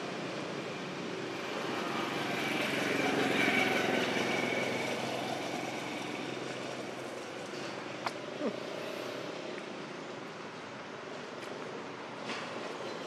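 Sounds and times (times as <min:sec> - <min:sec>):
distant traffic hum: 0:00.0 - 0:13.0.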